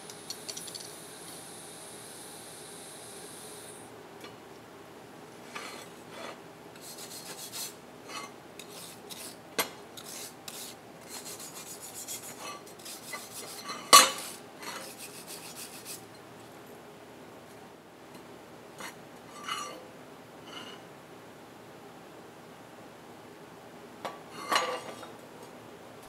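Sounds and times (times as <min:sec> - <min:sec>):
wire brush scrubbing metal: 0:06.8 - 0:09.4, 0:10.0 - 0:16.0.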